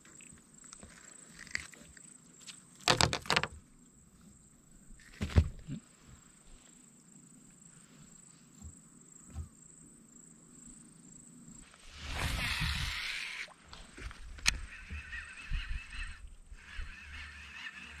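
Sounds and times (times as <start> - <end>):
high insect drone: 0.0 - 18.0
sharp knocks in a kayak: 2.8 - 3.6, 5.1 - 5.6, 8.6 - 9.6.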